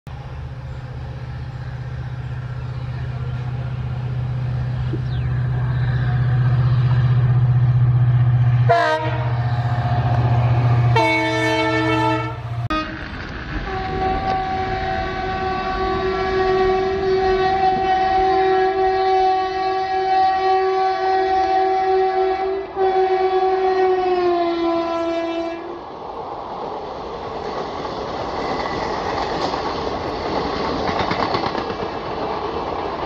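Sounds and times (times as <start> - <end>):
diesel locomotive engine drone: 0.1 - 33.0
two-note locomotive horn: 8.6 - 25.8
locomotive horn blasts: 8.7 - 9.5, 10.9 - 13.0, 13.6 - 25.8.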